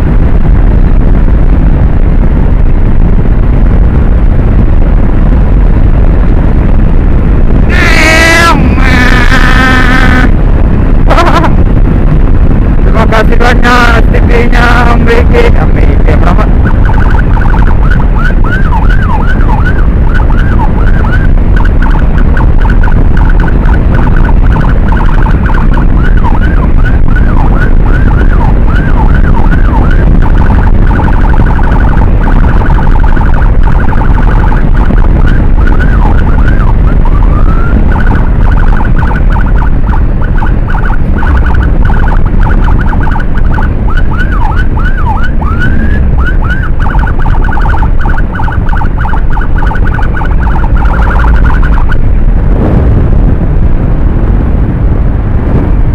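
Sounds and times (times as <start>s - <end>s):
motorcycle rumbling: 0.0s - 55.9s
electronic siren yelping: 7.4s - 12.2s, 14.6s - 52.3s.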